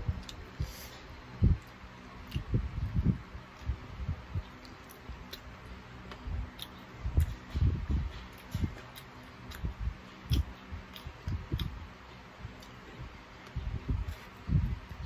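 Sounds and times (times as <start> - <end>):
chewing: 1.6 - 2.6, 4.4 - 14.4
soft low thuds: 6.1 - 8.8, 9.5 - 15.0.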